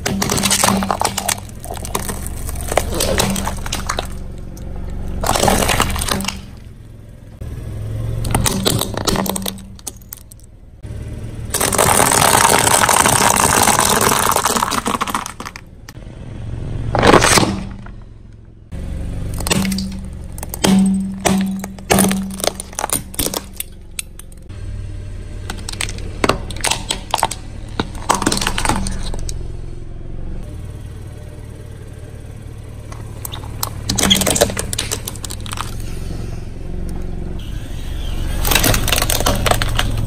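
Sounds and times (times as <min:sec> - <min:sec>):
objects crunching under car tyre: 0:00.0 - 0:07.0, 0:08.1 - 0:10.5, 0:11.5 - 0:16.0, 0:16.8 - 0:18.2, 0:19.2 - 0:24.5, 0:25.4 - 0:29.6, 0:32.8 - 0:36.3, 0:37.4 - 0:40.0.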